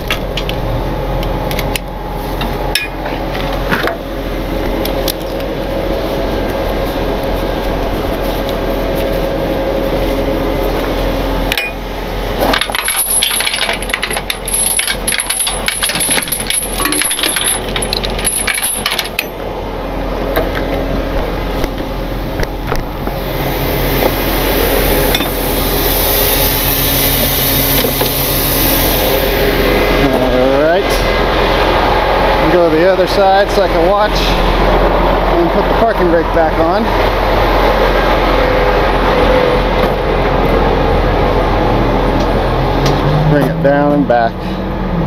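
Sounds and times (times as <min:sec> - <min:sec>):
truck engine idling: 0:00.0 - 0:45.0
steel chain rattling and clinking: 0:12.4 - 0:19.4.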